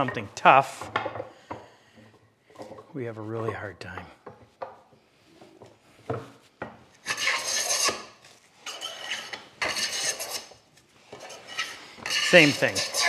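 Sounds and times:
hand plane scraping and chattering: 0:07.0 - 0:08.1, 0:08.7 - 0:10.5, 0:11.1 - 0:13.0.

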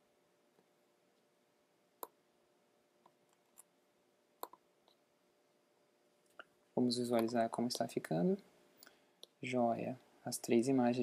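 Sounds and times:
faint steady hum: 0:00.0 - 0:11.0
mouse and keyboard clicks: 0:04.4 - 0:05.0.

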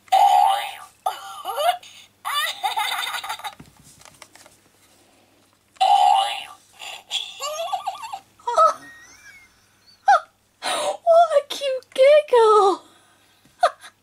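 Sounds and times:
electronic giggle effect: 0:07.1 - 0:10.3.

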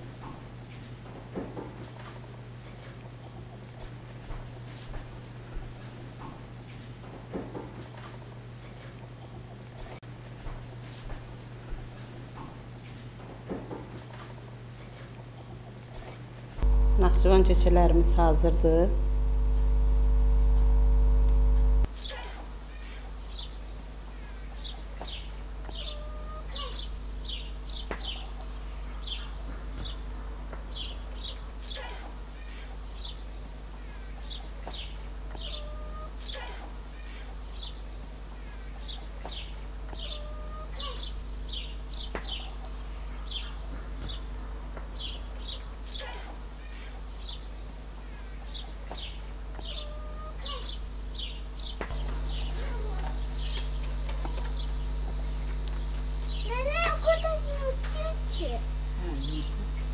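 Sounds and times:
steady low hum: 0:14.4 - 0:21.9, 0:33.6 - 0:59.9
loud humming tone: 0:16.6 - 0:21.9, 0:51.9 - 0:59.9
faint clicks: 0:19.4 - 0:21.9
small birds chirping: 0:21.3 - 0:30.0, 0:32.4 - 0:36.4, 0:37.0 - 0:59.9.

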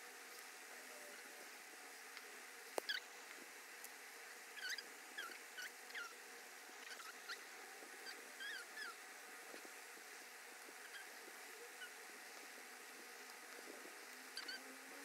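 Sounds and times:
steady background hiss: 0:00.0 - 0:15.0
small animal squeaking: 0:02.8 - 0:03.1, 0:04.6 - 0:06.2, 0:06.8 - 0:09.0, 0:14.4 - 0:14.7.

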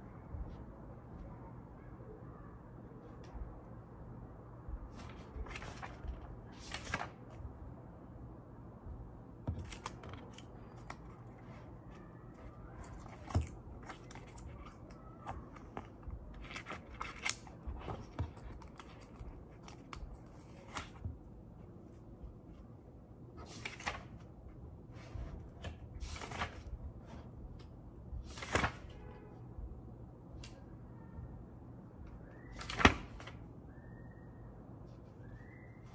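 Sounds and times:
pages turning and rustling: 0:04.9 - 0:07.4, 0:09.5 - 0:21.1, 0:23.4 - 0:24.3, 0:24.9 - 0:27.3, 0:28.3 - 0:29.0, 0:32.6 - 0:33.4.

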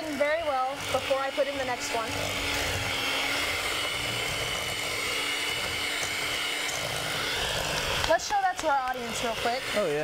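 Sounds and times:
electric hand mixer whirring: 0:00.0 - 0:10.0.

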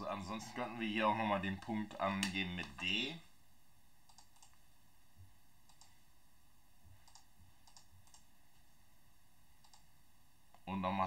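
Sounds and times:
computer mouse clicks: 0:04.1 - 0:04.6, 0:05.6 - 0:06.0, 0:07.0 - 0:08.3, 0:09.6 - 0:09.9.

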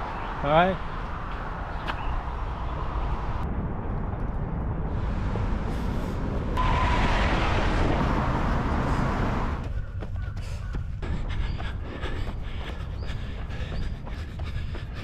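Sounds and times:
wind rumble on microphone: 0:01.0 - 0:15.0
vehicle rushing past: 0:04.6 - 0:09.7.

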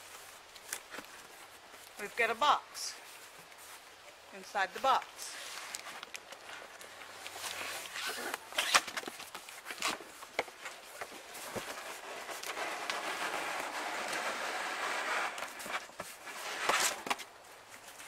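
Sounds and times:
cardboard carton scraping: 0:11.0 - 0:17.3.

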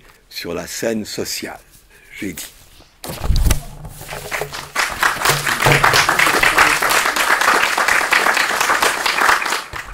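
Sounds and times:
audience applauding: 0:04.3 - 0:09.9.

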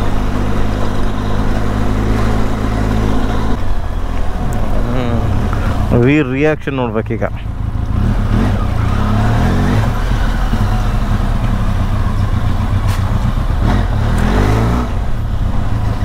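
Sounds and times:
motorcycle engine at low speed: 0:00.0 - 0:16.0.

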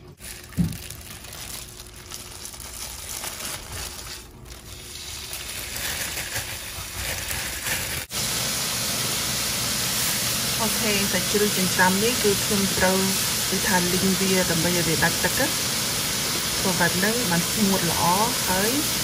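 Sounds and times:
plastic bag crinkling: 0:00.1 - 0:08.1
thump: 0:00.6 - 0:00.8
meat sizzling in a wok: 0:04.7 - 0:19.0.

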